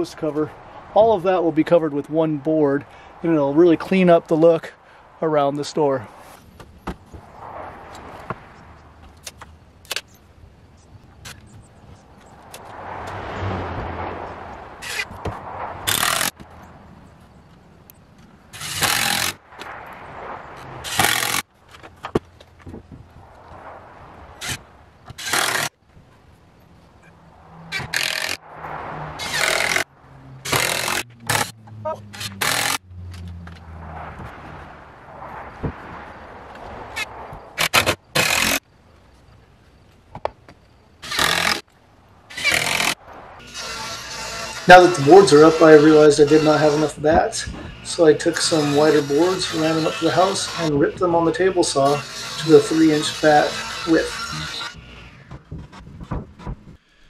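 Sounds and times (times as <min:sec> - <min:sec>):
vehicle passing: 0:00.0 - 0:09.8, 0:11.8 - 0:25.3, 0:26.3 - 0:37.7, 0:42.0 - 0:55.2
knocks of wood and tool: 0:54.2 - 0:56.8.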